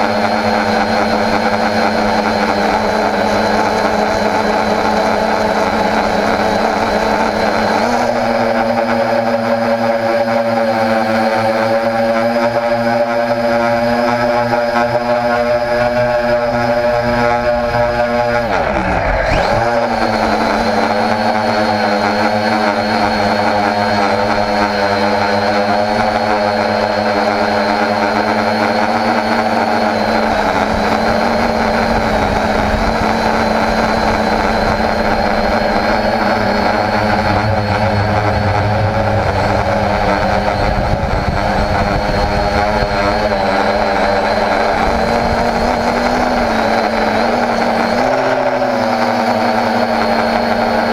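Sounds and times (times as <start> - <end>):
quadcopter motors buzzing whine: 0.0 - 50.9.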